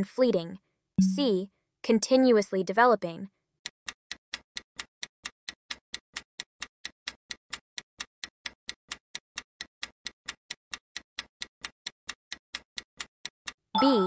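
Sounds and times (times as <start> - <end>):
ticking clock: 3.9 - 14.0.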